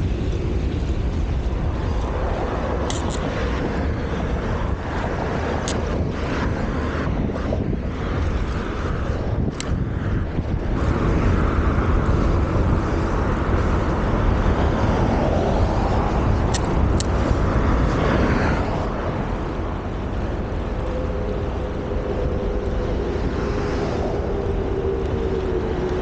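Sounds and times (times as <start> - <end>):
passing vehicle hum: 0.0 - 26.0
road noise rumble: 0.0 - 26.0
wind buffeting microphone: 0.0 - 26.0.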